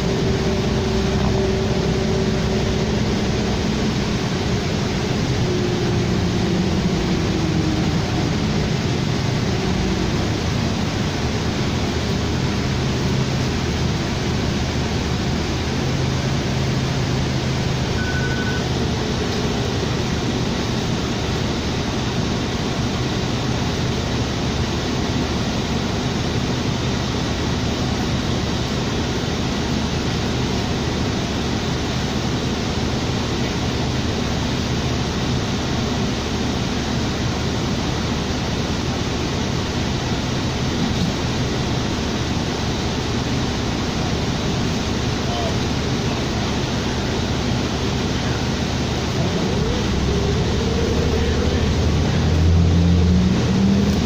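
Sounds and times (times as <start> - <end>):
bus engine hum: 0.0 - 54.0
short beep: 17.9 - 18.7.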